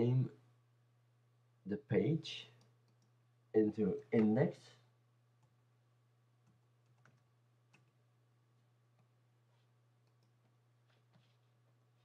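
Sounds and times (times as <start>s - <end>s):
faint low hum: 0.0s - 12.0s
computer keyboard typing: 6.4s - 8.0s.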